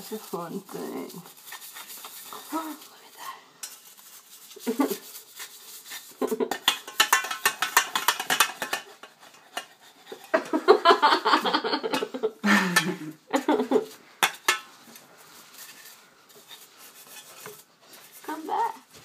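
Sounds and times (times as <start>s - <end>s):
metal pot clattering and clinking: 6.1s - 10.6s, 11.9s - 17.6s.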